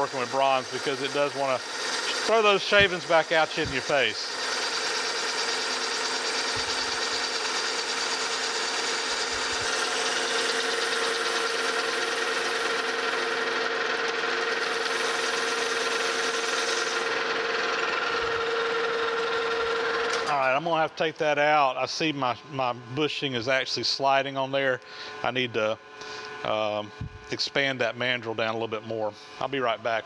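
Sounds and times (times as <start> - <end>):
metal lathe humming: 0.0 - 21.0.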